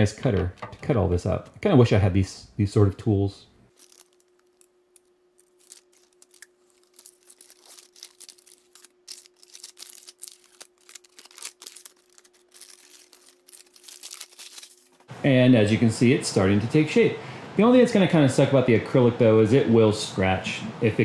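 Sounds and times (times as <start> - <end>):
faint steady hum: 0.0 - 21.0
paper backing peeled off plastic: 3.7 - 15.1.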